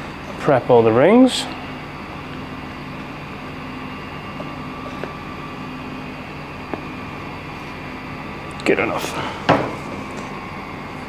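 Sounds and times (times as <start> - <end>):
room tone hum and hiss: 0.0 - 11.0.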